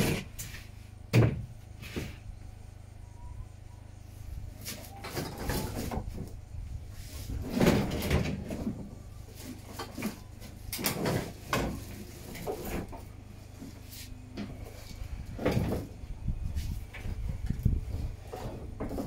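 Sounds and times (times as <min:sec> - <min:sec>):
steady low rumble: 0:06.0 - 0:09.4, 0:12.9 - 0:19.0.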